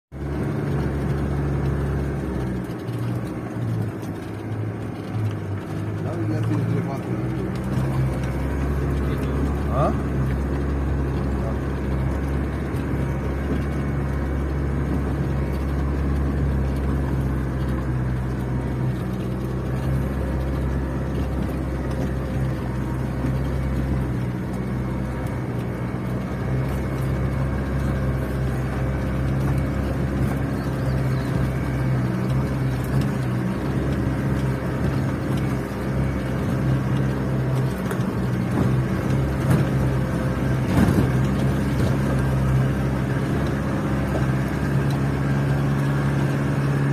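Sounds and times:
diesel engine hum in cabin: 0:00.0 - 0:46.9.

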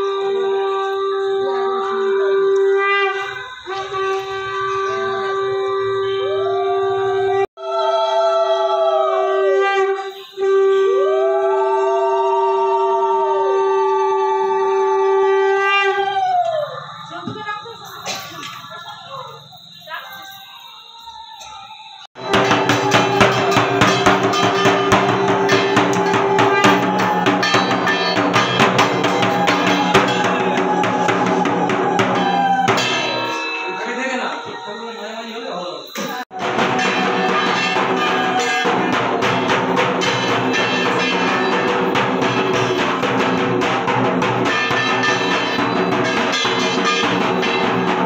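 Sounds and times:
conch shell blowing: 0:00.0 - 0:16.4, 0:21.8 - 0:35.0, 0:35.8 - 0:48.0
sustained pitched tones: 0:16.8 - 0:48.0
festive drum music: 0:22.2 - 0:34.8, 0:35.9 - 0:48.0.

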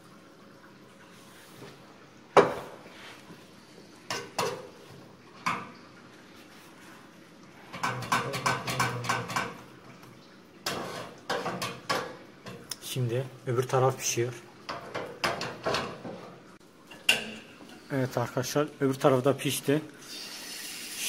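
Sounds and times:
pans and utensils clattering: 0:04.1 - 0:05.8, 0:07.6 - 0:09.7, 0:10.6 - 0:12.7, 0:14.7 - 0:17.8.

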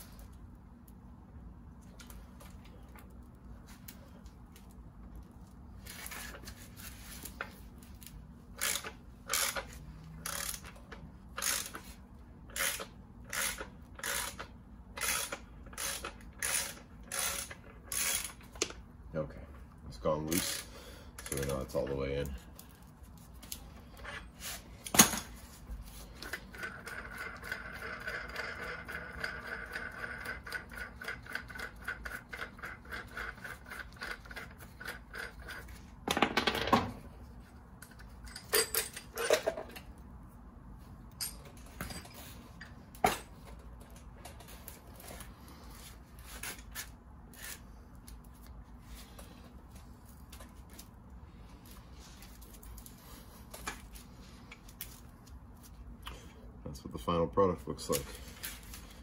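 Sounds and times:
ratchet clicking: 0:08.6 - 0:11.9, 0:12.5 - 0:18.6.

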